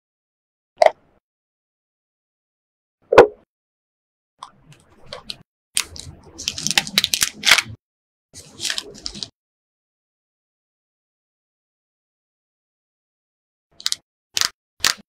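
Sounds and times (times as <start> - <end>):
plastic wrap crinkling: 5.8 - 7.8.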